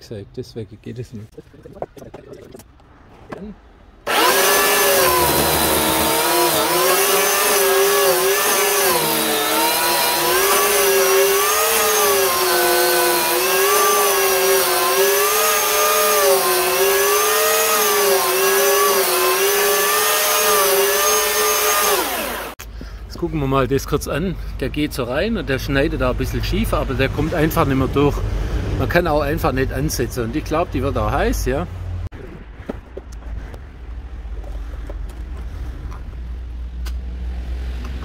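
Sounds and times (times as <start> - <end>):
electric chainsaw cutting wood: 4.0 - 22.6.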